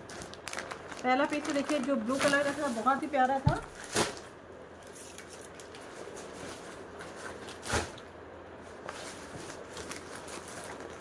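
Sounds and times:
plastic bag crinkling: 0.0 - 4.3, 8.8 - 11.0.

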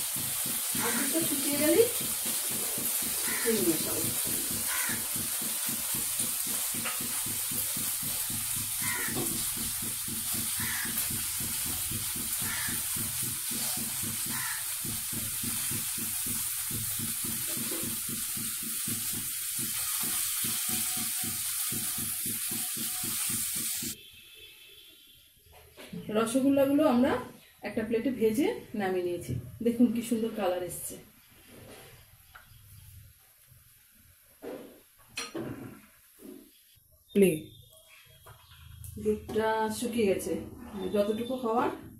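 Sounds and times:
food sizzling in frying pan: 0.0 - 24.0.

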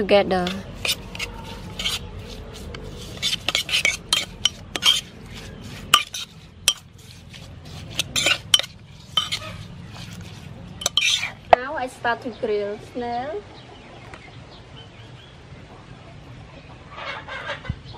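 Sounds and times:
metal spoon scraping a pot: 0.3 - 11.5.

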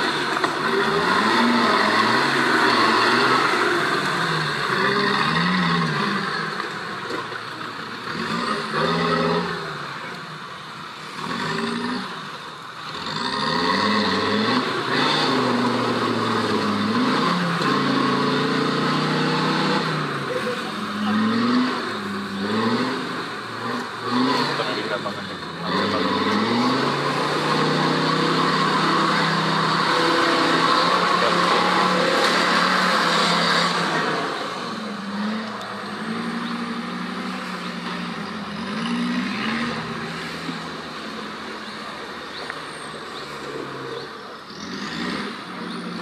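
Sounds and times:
engine revving up and down: 0.0 - 10.2, 11.0 - 46.0.

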